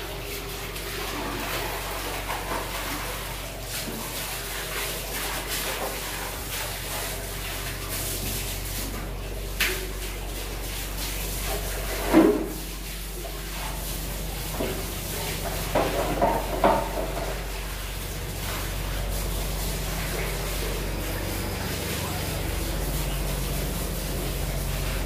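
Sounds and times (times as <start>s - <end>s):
hose water spraying on wood: 0.0s - 25.0s
scrubbing knocks on boards: 15.8s - 17.2s.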